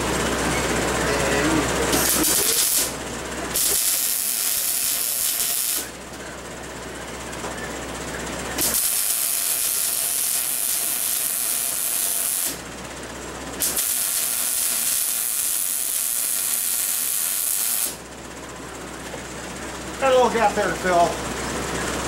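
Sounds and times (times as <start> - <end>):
welder arc crackling and hissing: 1.8 - 6.0, 8.6 - 12.6, 13.6 - 18.0.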